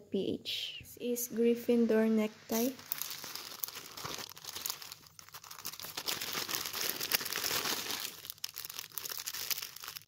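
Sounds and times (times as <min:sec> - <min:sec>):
plastic bag crinkling: 0:02.5 - 0:10.0.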